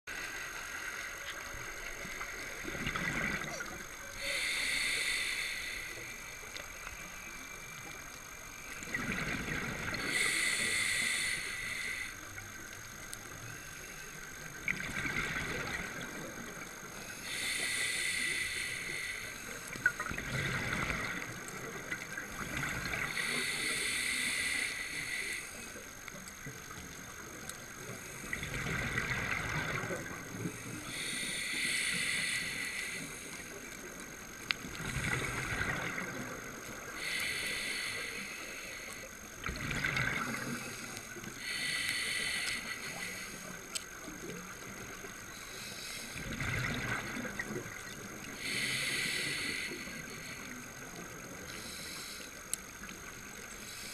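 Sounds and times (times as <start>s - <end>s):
hissing regulator inhale: 3.0s - 8.0s, 8.7s - 12.3s, 16.9s - 26.3s, 27.4s - 47.5s, 48.2s - 53.9s
bubbling exhale underwater: 46.2s - 48.8s.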